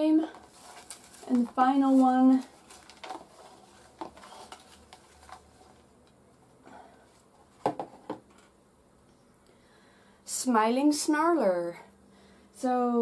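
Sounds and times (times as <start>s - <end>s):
paper rustling: 0.2s - 6.0s.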